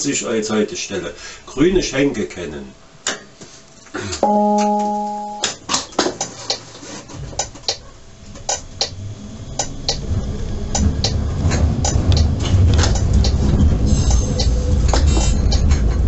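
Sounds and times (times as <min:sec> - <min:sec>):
tram motors and wheels rumbling: 0:06.3 - 0:16.0.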